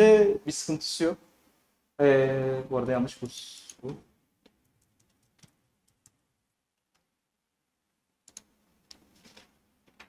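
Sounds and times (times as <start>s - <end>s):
computer keys typing: 4.6s - 6.2s.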